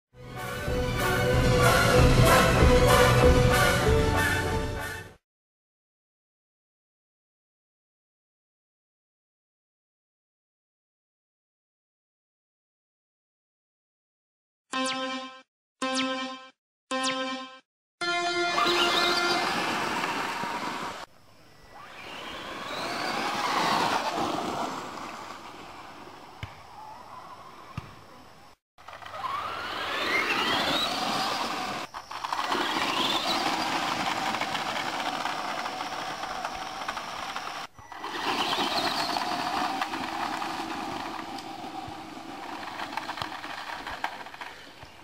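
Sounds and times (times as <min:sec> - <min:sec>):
electric motors whining: 0:18.4 - 0:26.0, 0:28.8 - 0:45.0
tyres crunching on gravel: 0:28.8 - 0:45.0.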